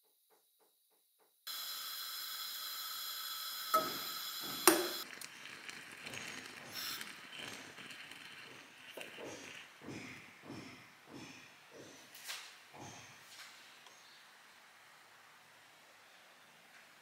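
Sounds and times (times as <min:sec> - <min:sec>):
kettle boiling hiss: 0:01.5 - 0:11.3.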